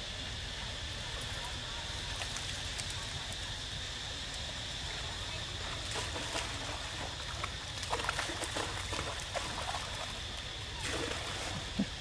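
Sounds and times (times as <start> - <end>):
steady background hiss: 0.0 - 12.0
water splashing and dripping: 5.0 - 11.7.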